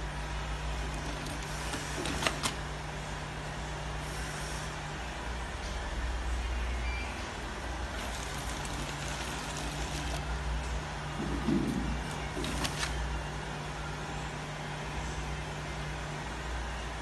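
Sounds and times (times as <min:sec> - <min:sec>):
packing machine motor hum: 0:00.0 - 0:03.1, 0:07.4 - 0:13.3.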